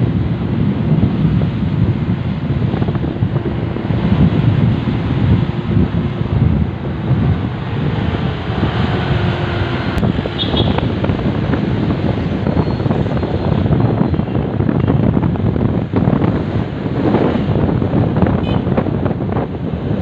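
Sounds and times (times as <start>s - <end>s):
road and traffic noise: 0.0s - 20.0s
wind buffeting microphone: 0.0s - 20.0s.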